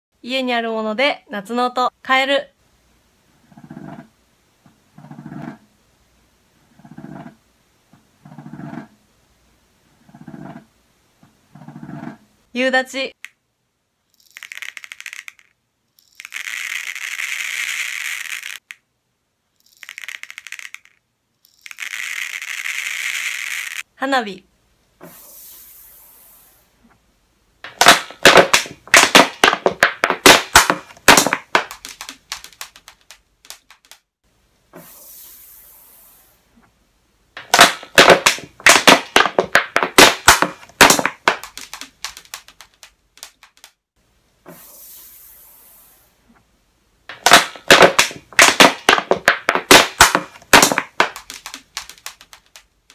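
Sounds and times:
plastic bottle crackling: 0:27.6 - 0:34.0, 0:37.4 - 0:43.7, 0:47.1 - 0:52.7
brief high hiss: 0:34.8 - 0:36.4, 0:44.5 - 0:46.2.

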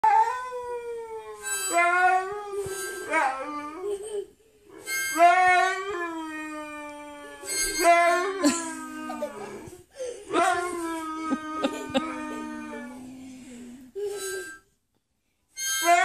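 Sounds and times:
harmonica long held notes: 0:01.4 - 0:03.5, 0:04.7 - 0:05.9, 0:07.2 - 0:09.0, 0:11.7 - 0:14.8, 0:15.5 - 0:16.0.

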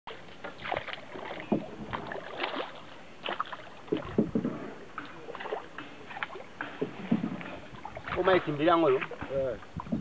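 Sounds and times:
paddle splashing in water: 0:00.1 - 0:10.0
dull knocks on canoe: 0:00.6 - 0:02.7, 0:03.3 - 0:10.0.

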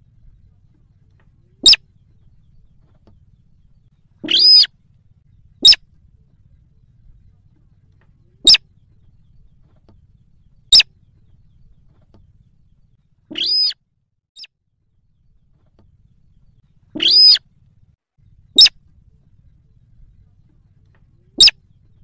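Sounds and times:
bird harsh arched calls: 0:01.6 - 0:04.8, 0:05.6 - 0:05.8, 0:08.4 - 0:09.4, 0:10.4 - 0:11.4, 0:13.3 - 0:13.8, 0:16.8 - 0:17.5, 0:18.4 - 0:18.8, 0:21.4 - 0:21.8
bird sharp clicks: 0:04.2 - 0:04.7, 0:08.0 - 0:08.6, 0:13.3 - 0:13.8, 0:17.0 - 0:17.4.

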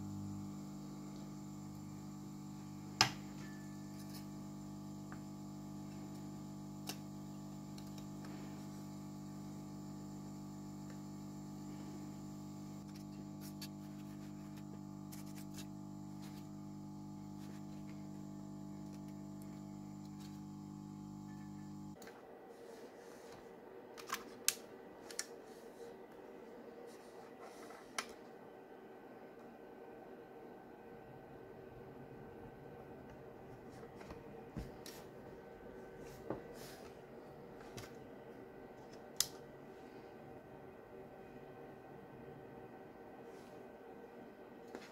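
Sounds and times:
hot air station humming: 0:00.0 - 0:22.0.

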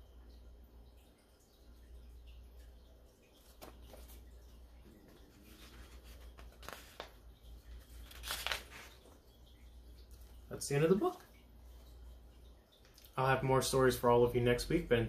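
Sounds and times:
low steady hum: 0:00.0 - 0:15.0
paper pages turning: 0:03.4 - 0:04.2, 0:05.3 - 0:09.2.

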